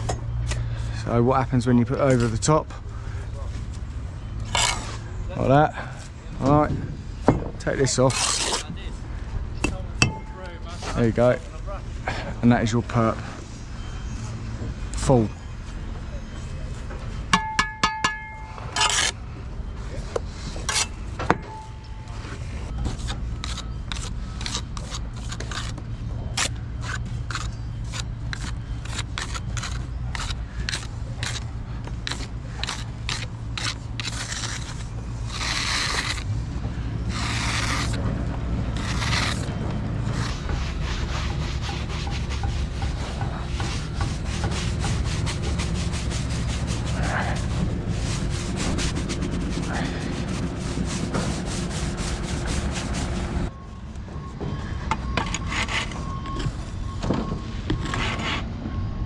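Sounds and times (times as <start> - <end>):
brick jointer scraping mortar: 4.5 - 4.9, 7.9 - 8.7, 18.8 - 19.2, 22.9 - 25.8, 26.4 - 36.3, 37.1 - 38.0, 38.8 - 39.5, 40.1 - 47.6
trowel knocking on bricks: 17.4 - 19.1.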